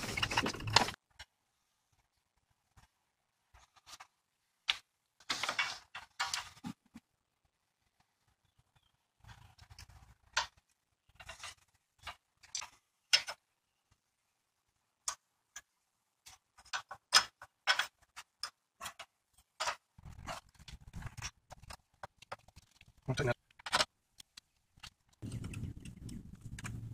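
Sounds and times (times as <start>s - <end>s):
rustling: 0.0s - 1.2s
parts clicking and knocking: 0.0s - 1.4s, 2.7s - 7.1s, 9.2s - 14.1s, 15.0s - 26.9s.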